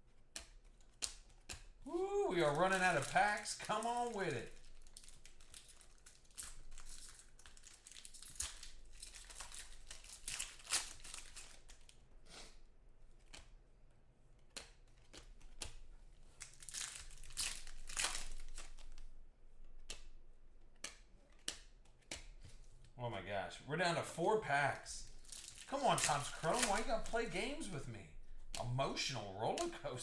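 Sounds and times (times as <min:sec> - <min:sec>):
cards rustling and clicking: 0:00.0 - 0:12.0, 0:13.1 - 0:13.6, 0:14.2 - 0:23.0, 0:25.0 - 0:30.0
foil wrapper crinkling and tearing: 0:01.9 - 0:12.0, 0:15.0 - 0:19.1, 0:25.0 - 0:29.7.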